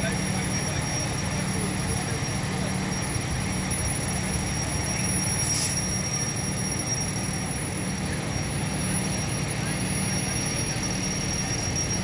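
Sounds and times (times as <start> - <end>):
fire truck engine humming: 0.0 - 12.0
brief hiss: 5.4 - 5.8.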